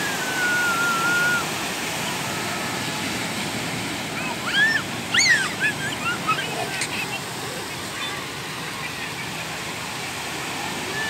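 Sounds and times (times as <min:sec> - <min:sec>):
ocean surf breaking on beach: 0:00.0 - 0:11.0
child squealing: 0:00.1 - 0:01.5, 0:04.2 - 0:06.5.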